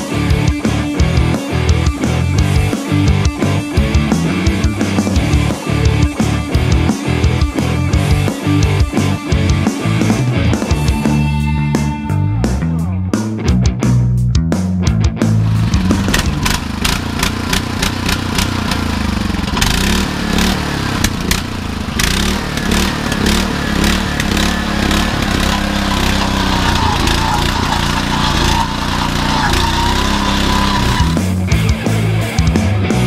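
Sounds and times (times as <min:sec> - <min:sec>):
earth auger engine running: 0:15.4 - 0:31.3.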